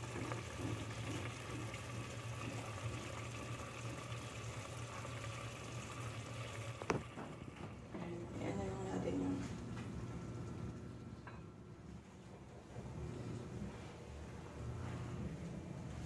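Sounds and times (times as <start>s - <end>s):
pot simmering with bubbling hiss: 0.0s - 11.2s.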